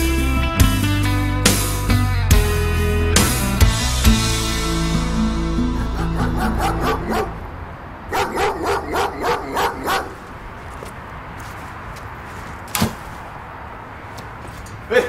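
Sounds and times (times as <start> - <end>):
dog barking: 5.8 - 7.4, 8.1 - 10.3
sharp thud: 12.7 - 13.1.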